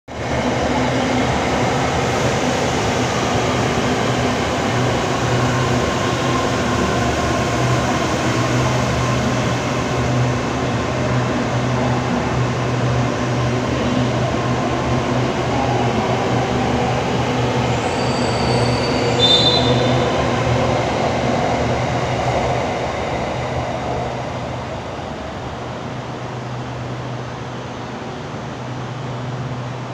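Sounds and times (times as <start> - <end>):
high squeal: 17.6 - 20.5.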